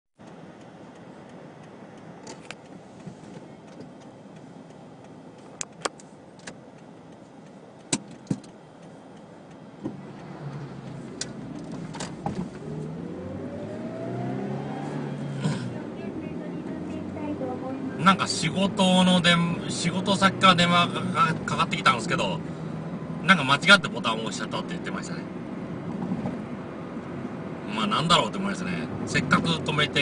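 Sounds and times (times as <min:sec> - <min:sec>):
car engine: 0:00.2 - 0:30.0
road noise: 0:00.2 - 0:30.0
sharp clicks and knocks: 0:07.8 - 0:08.6.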